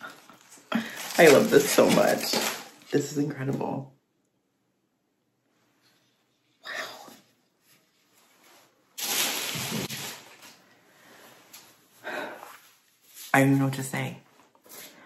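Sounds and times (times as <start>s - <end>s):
person breathing: 0.6s - 1.2s, 10.7s - 12.7s.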